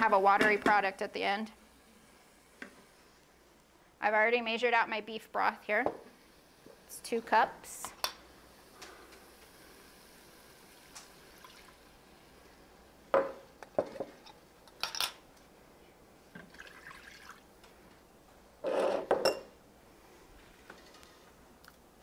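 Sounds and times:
broth pouring into pot: 8.2s - 12.9s, 16.4s - 17.6s
cup clinking against pot: 18.6s - 19.5s.

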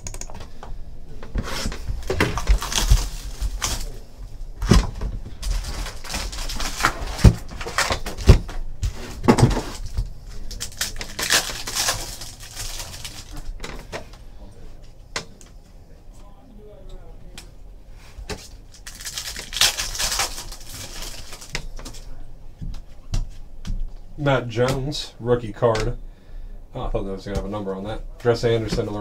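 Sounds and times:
foil wrappers crinkling: 2.0s - 8.4s, 9.4s - 13.6s, 18.3s - 22.2s.

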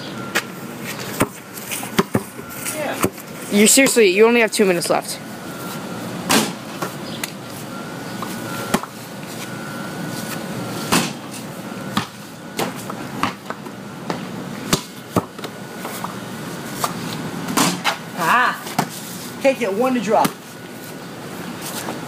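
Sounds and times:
outdoor background noise: 0.0s - 22.0s
basketball bouncing on concrete: 1.1s - 4.1s, 11.9s - 16.2s
basketball hitting backboard and rim: 1.2s - 2.4s, 6.2s - 7.0s, 10.9s - 11.3s, 11.9s - 15.6s, 16.9s - 18.1s.

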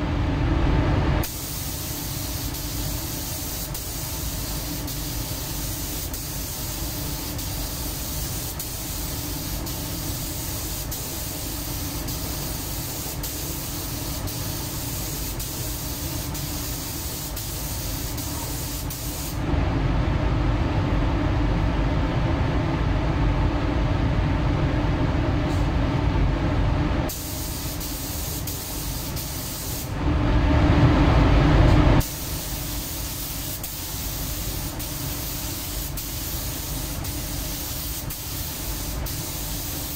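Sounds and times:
paint spray gun hissing: 1.2s - 19.4s, 27.1s - 29.9s, 32.0s - 39.9s.

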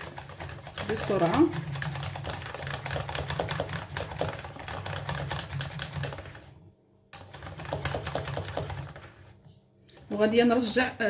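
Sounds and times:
whisk clicking against metal pan: 0.0s - 6.4s.

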